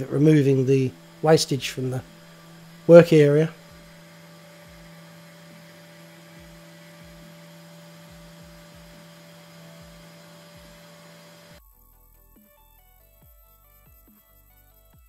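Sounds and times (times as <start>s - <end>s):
faint electrical hum: 0.0s - 11.6s.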